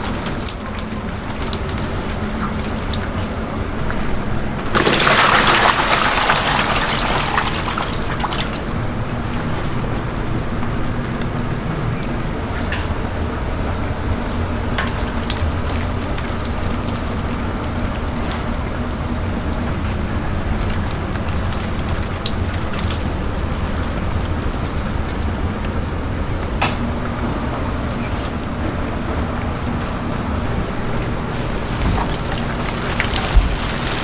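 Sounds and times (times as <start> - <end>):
continuous low rumble: 0.0 - 34.0
fish slithering and splashing: 4.7 - 8.6, 14.8 - 18.3, 20.5 - 25.0, 31.3 - 34.0.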